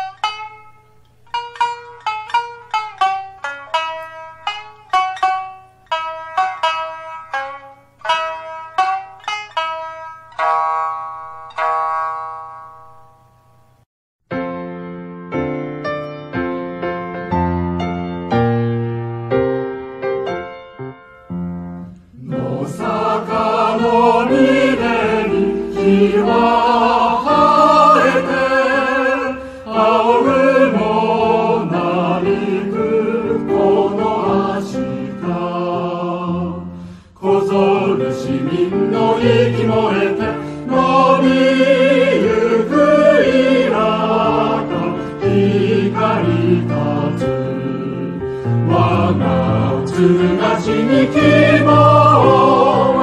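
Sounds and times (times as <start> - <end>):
low musical accompaniment: 0.0 - 11.7, 14.4 - 53.0
choir singing: 22.1 - 53.0.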